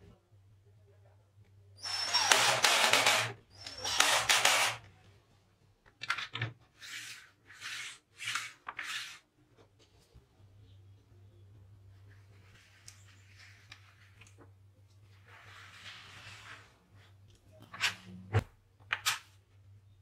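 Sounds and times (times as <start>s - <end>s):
cordless drill driving screws: 1.8s - 4.8s.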